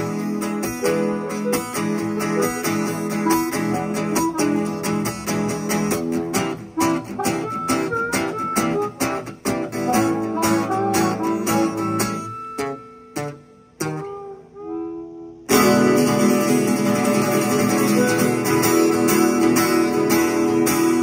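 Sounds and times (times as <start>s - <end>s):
acoustic guitar strumming: 0.0s - 21.0s
harmonica melody: 0.0s - 21.0s.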